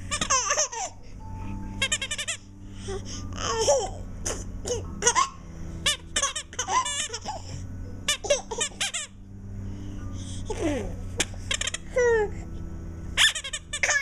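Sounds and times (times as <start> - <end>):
baby giggling and squealing: 0.1 - 1.0, 1.8 - 2.4, 3.4 - 9.2, 10.5 - 12.4, 13.2 - 14.0.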